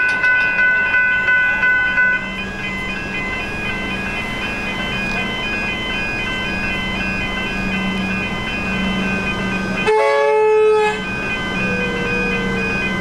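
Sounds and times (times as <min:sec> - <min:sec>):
level crossing warning bells: 0:00.0 - 0:13.0
train horn blast: 0:09.8 - 0:11.0.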